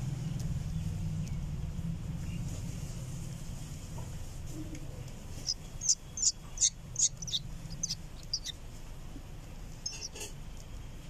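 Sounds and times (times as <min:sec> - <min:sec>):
fledgling bird chirping: 0:05.0 - 0:08.7, 0:09.7 - 0:10.3.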